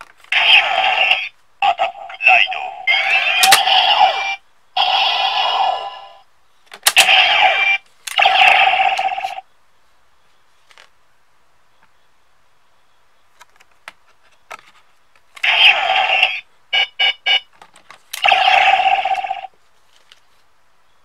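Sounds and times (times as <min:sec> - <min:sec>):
loud electronic sound effect: 0:00.4 - 0:02.2, 0:02.8 - 0:06.2, 0:06.9 - 0:09.4.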